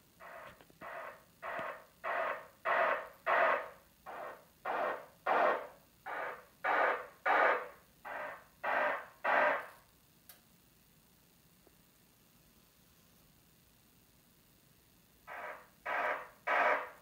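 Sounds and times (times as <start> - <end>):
bursts of hissy test noise: 0.0 - 9.9, 15.1 - 17.0.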